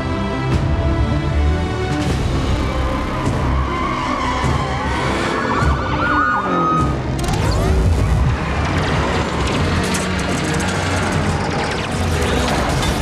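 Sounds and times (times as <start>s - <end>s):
police sirens wailing: 3.0s - 12.4s.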